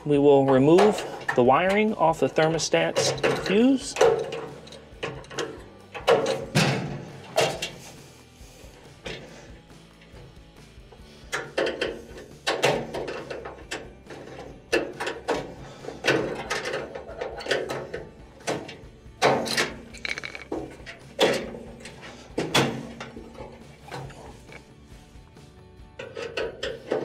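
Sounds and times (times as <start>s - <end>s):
short rattling scrapes: 20.0s - 20.6s.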